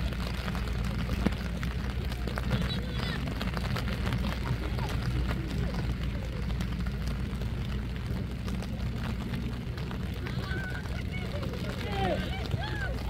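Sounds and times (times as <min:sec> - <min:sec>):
steady low rumble: 0:00.0 - 0:13.0
distant shouts of players: 0:10.2 - 0:13.0.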